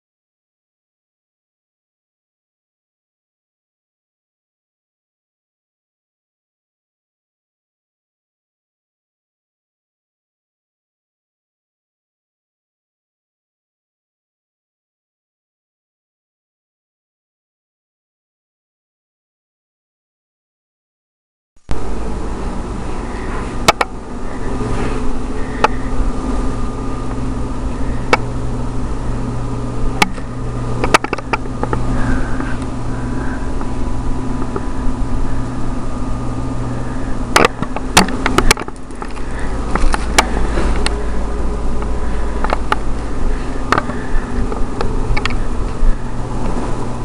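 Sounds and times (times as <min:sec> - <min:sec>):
faint high whine: 0:21.6 - 0:47.0
low mechanical hum: 0:21.6 - 0:47.0
sharp clicks and knocks: 0:23.6 - 0:23.9, 0:30.0 - 0:31.8, 0:37.3 - 0:41.0, 0:42.4 - 0:43.1, 0:43.7 - 0:45.4.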